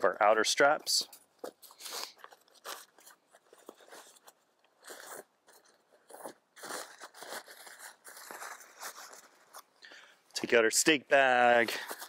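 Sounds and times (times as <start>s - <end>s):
nylon sack crinkling: 1.6s - 9.6s.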